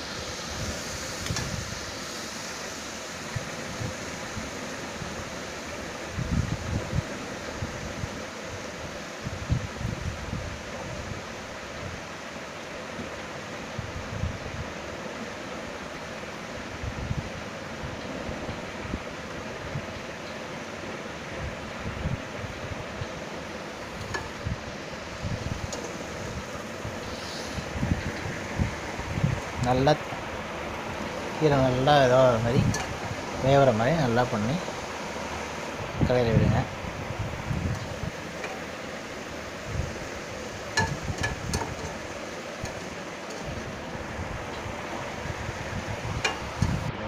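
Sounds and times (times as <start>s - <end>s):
greens hissing in a pan: 0.0s - 5.7s, 23.4s - 44.5s
spoon knocking pan: 40.8s - 42.0s.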